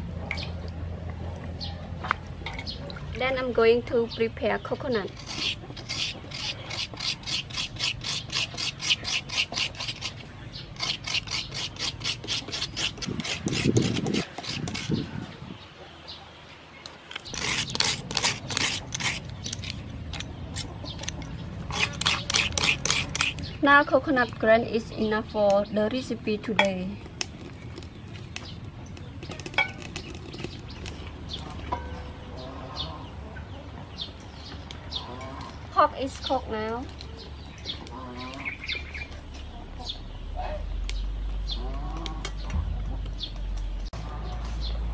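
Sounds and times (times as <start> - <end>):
birds chirping: 0.0 - 44.9
coconut scraper rasping: 5.0 - 15.1, 17.1 - 23.6.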